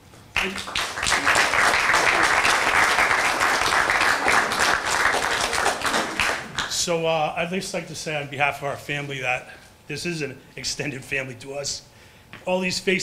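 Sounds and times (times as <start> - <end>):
people applauding: 0.4 - 6.8.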